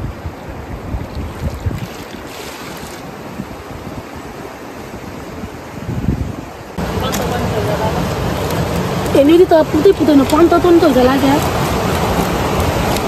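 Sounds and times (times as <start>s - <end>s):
wind buffeting microphone: 0.0s - 13.0s
stream water rushing over rocks: 0.4s - 3.4s, 6.8s - 13.0s.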